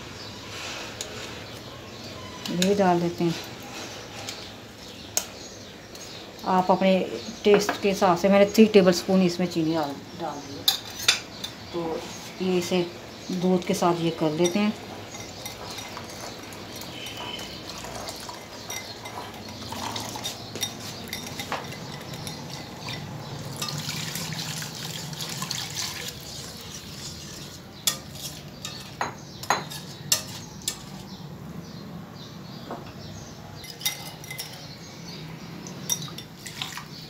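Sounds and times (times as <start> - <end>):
spoon stirring in glass bowl: 14.3 - 24.6, 25.8 - 31.0
spoon clinking on metal pan: 18.2 - 23.9
liquid pouring into pan: 23.6 - 27.5.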